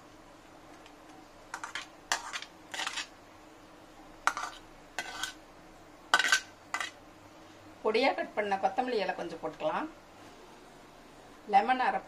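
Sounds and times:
food pieces clattering into bowl: 0:01.6 - 0:03.1, 0:06.2 - 0:07.0.

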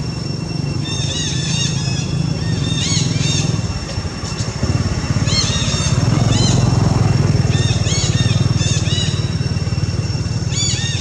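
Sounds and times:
engine running with low pulsing: 0:00.0 - 0:11.0
high-pitched chirping calls: 0:00.7 - 0:03.8, 0:05.2 - 0:09.6, 0:10.4 - 0:11.0.

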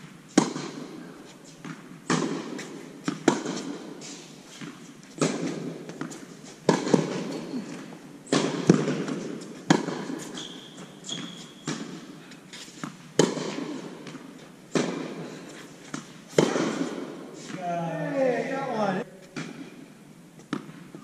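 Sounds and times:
racquets hitting tennis ball: 0:00.0 - 0:19.8, 0:20.4 - 0:21.0
ball bouncing on hard court: 0:00.4 - 0:00.8, 0:01.6 - 0:03.8, 0:04.6 - 0:12.0, 0:12.8 - 0:15.2, 0:15.9 - 0:17.6.

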